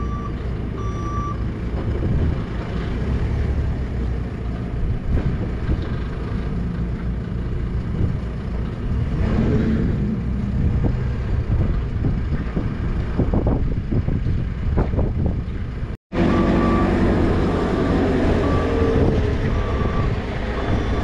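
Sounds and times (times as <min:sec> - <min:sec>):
truck diesel engine idling: 0:16.2 - 0:21.0.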